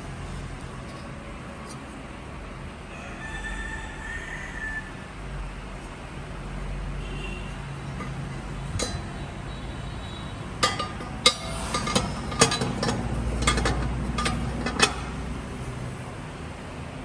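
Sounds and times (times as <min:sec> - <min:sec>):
metal lid clinking: 0:07.9 - 0:15.2.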